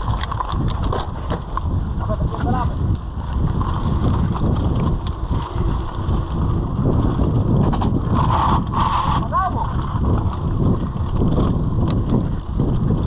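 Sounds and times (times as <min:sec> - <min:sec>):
bike clicks and knocks: 0:00.0 - 0:01.8
bike tyres rumbling on gravel: 0:00.0 - 0:13.0
wind buffeting microphone: 0:00.0 - 0:13.0.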